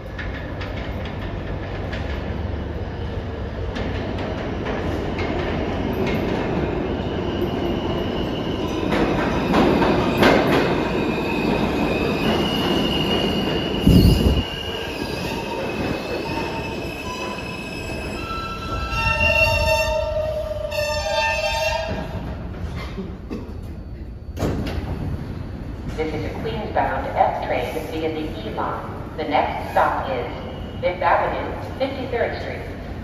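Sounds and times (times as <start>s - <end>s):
steel wheels rumbling on rail: 0.0s - 30.8s.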